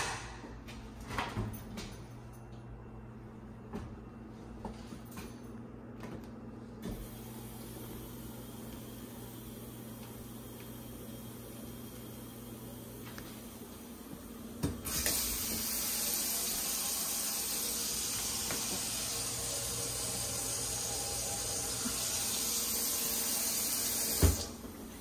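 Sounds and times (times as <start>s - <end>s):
faucet running into steel sink: 14.8s - 24.6s
faucet shutting off knock: 23.9s - 24.5s.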